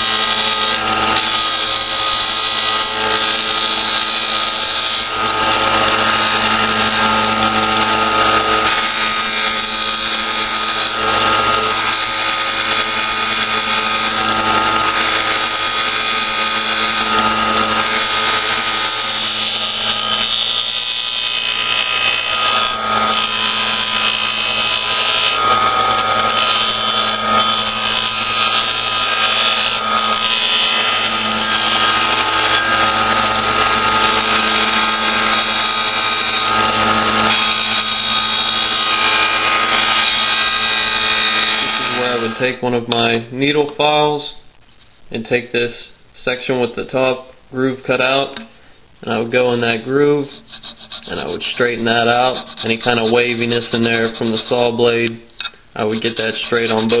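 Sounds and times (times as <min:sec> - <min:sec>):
disc sander motor hum: 0:00.0 - 0:42.5, 0:50.2 - 0:57.0
abrasive rasping on hardboard: 0:50.3 - 0:54.8, 0:55.4 - 0:57.0.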